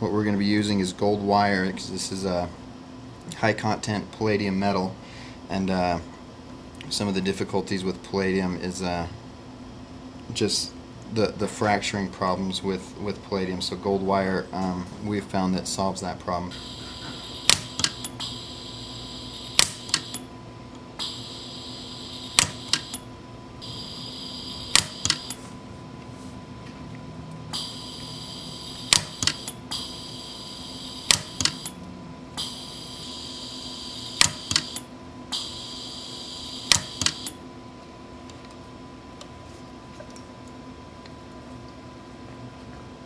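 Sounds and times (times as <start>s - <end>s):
welder pulse snaps: 17.4s - 18.2s, 19.4s - 20.2s, 22.3s - 23.0s, 24.7s - 25.4s, 28.9s - 29.9s, 31.1s - 31.8s, 34.2s - 34.9s, 36.7s - 37.4s.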